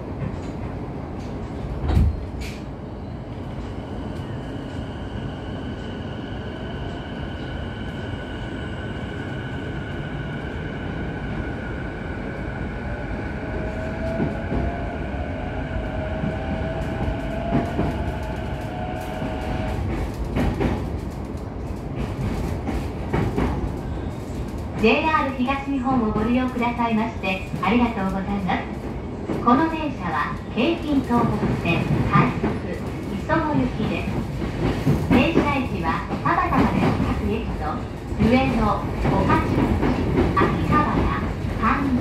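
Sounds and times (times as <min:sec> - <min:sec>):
train wheels rumbling: 0:00.0 - 0:42.0
rail joint clicks: 0:00.1 - 0:04.8, 0:16.1 - 0:42.0.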